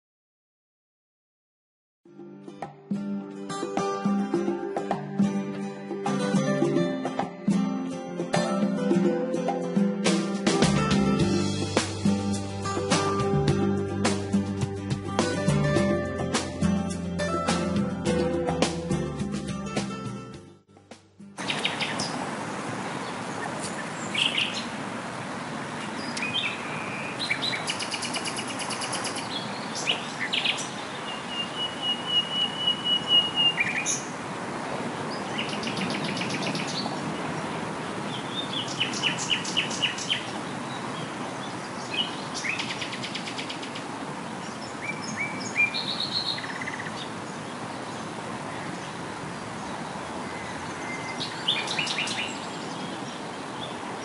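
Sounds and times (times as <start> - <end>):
songbirds singing and trilling: 21.4 - 34.2, 35.0 - 54.0.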